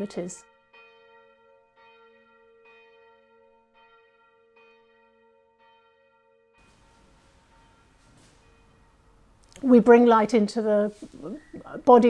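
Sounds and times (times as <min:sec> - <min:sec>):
church bell tolling: 0:00.0 - 0:11.8.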